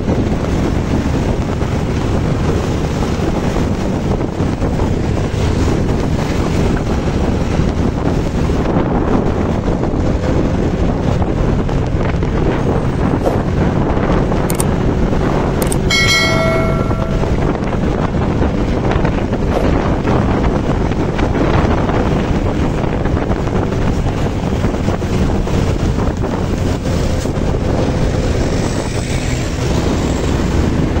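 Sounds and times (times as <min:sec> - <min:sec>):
road traffic rumble: 0:00.0 - 0:31.0
wind buffeting microphone: 0:00.0 - 0:31.0
short pitched tone: 0:15.8 - 0:17.5.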